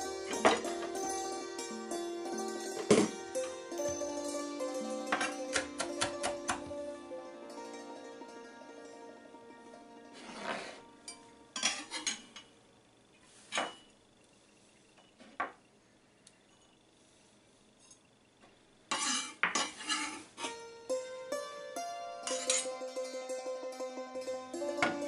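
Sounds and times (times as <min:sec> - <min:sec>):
knife scraping wooden board: 0:18.9 - 0:20.3.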